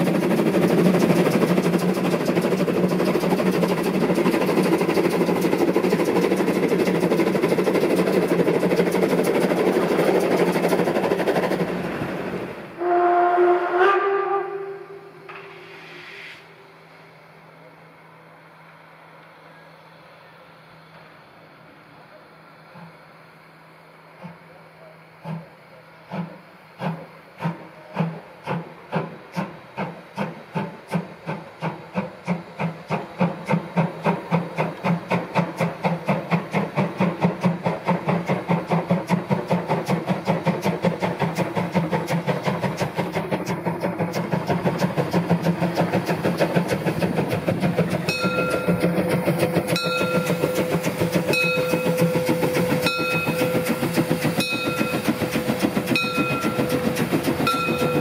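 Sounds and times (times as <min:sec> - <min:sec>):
steam locomotive chuffing: 0:00.0 - 0:58.0.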